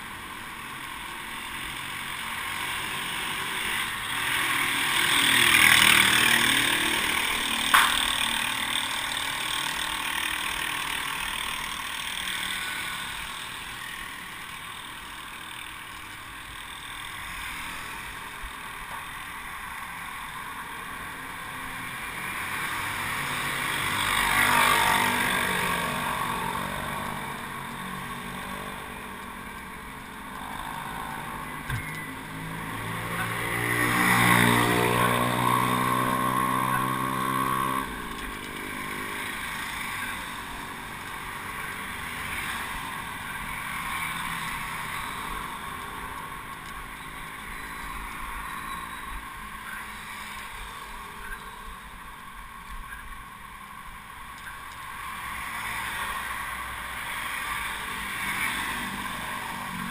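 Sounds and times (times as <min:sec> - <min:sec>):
wind and road noise: 0:00.0 - 0:59.9
passing motorcycle engine: 0:01.7 - 0:18.6, 0:21.0 - 0:48.9.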